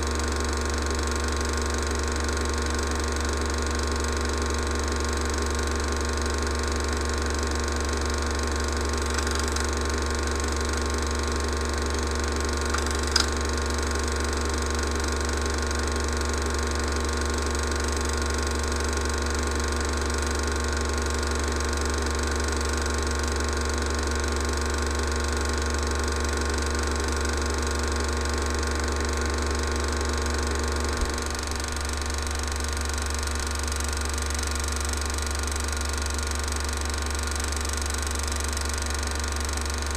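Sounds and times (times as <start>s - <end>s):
film projector whirring: 0.0s - 39.9s
projector click: 9.0s - 10.0s, 11.8s - 13.7s.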